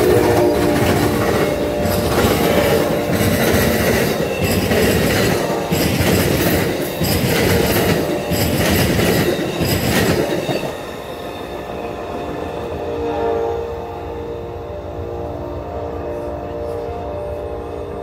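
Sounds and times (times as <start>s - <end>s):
train wheels clattering over rails: 0.0s - 12.4s
receding train tone: 0.0s - 18.0s.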